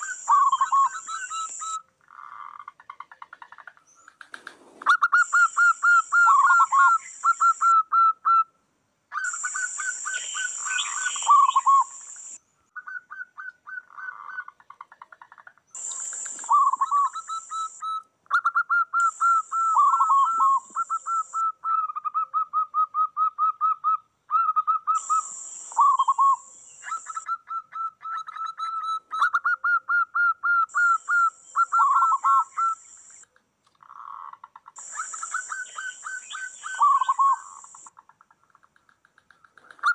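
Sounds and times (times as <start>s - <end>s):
doves cooing: 19.0s - 21.4s, 33.8s - 37.9s.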